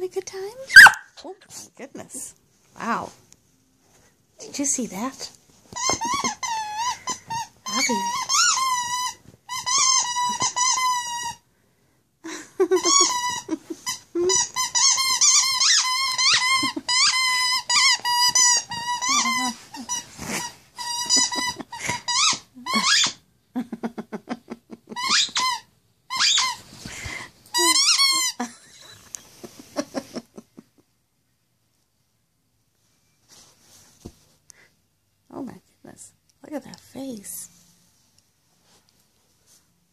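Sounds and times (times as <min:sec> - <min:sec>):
squeaky toy squeaking: 0:00.7 - 0:01.2, 0:05.7 - 0:11.4, 0:12.7 - 0:23.2, 0:25.0 - 0:26.6, 0:27.5 - 0:28.4.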